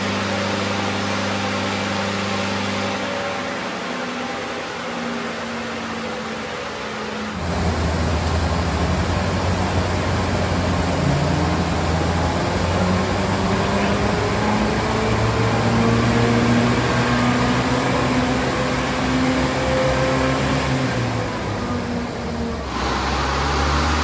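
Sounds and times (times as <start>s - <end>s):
car engine revving on dyno: 0.0s - 24.0s
dyno rollers whirring: 0.0s - 24.0s.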